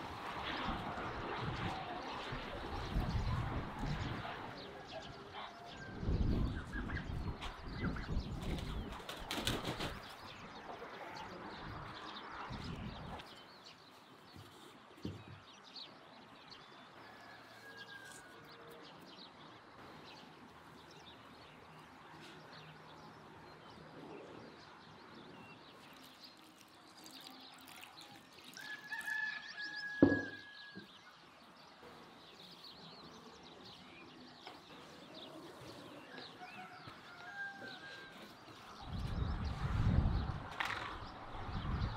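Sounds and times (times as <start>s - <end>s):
rooster crowing: 17.0s - 18.7s, 28.6s - 30.9s, 36.4s - 38.3s.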